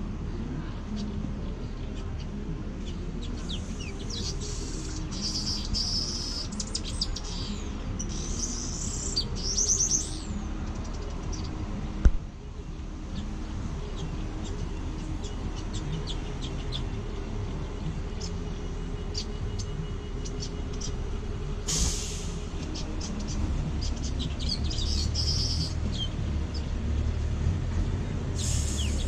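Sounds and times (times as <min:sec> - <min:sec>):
small birds chirping: 0:00.0 - 0:29.0
steady low rumble: 0:00.0 - 0:29.0
sharp knock: 0:12.0 - 0:12.2.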